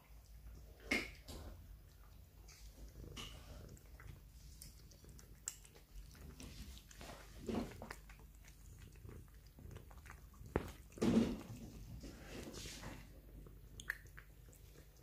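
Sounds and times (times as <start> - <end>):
cats chewing wet food: 0.0 - 15.0.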